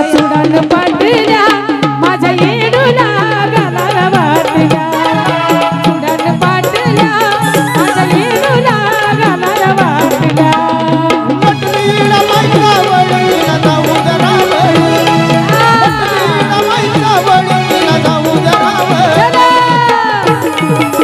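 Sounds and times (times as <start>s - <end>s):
hand drums fast beat: 0.0s - 21.0s
woman singing: 0.0s - 21.0s.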